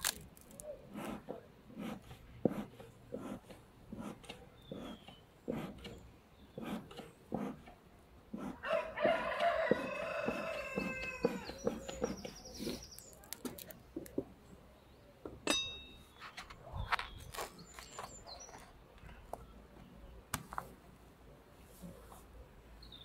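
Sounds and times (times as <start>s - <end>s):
rooster crowing: 8.6s - 11.6s.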